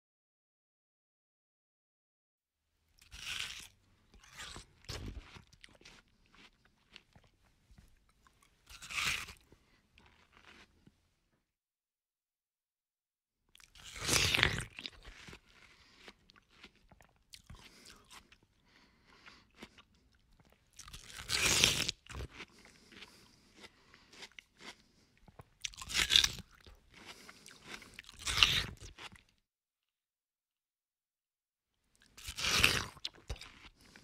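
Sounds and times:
person crunching fruit: 0:03.0 - 0:11.0, 0:13.6 - 0:29.4, 0:32.0 - 0:34.0.

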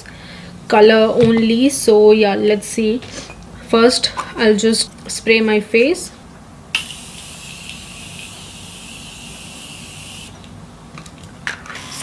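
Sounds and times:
spray bottle hissing: 0:06.8 - 0:10.4.

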